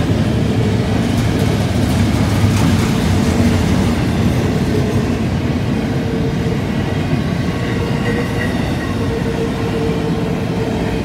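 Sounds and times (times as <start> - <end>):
steel wheels rumbling on rail: 0.0 - 11.0
faint steady wheel squeal: 6.0 - 10.9.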